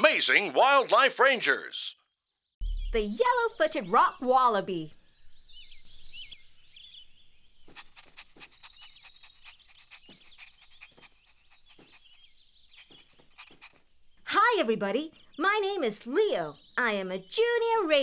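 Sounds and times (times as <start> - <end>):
birds chirping: 1.5 - 18.0.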